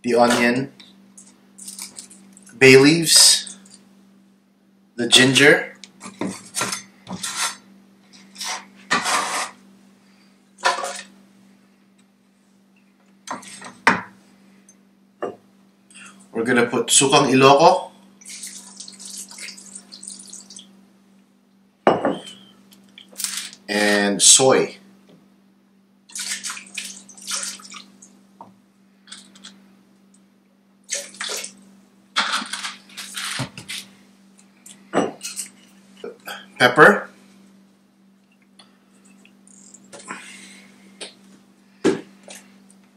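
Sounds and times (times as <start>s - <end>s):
bottle set down on counter: 21.9s - 22.2s.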